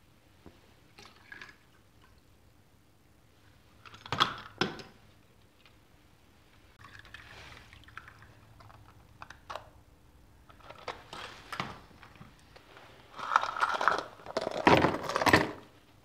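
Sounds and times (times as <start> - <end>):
liquid pouring or splashing: 0.9 - 2.3, 6.8 - 8.9.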